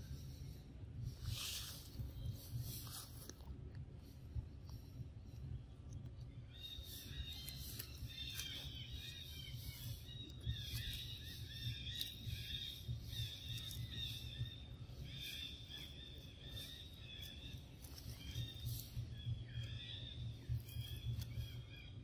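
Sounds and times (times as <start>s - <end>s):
low rumble: 0.0s - 22.0s
high chirping from forest: 6.2s - 22.0s.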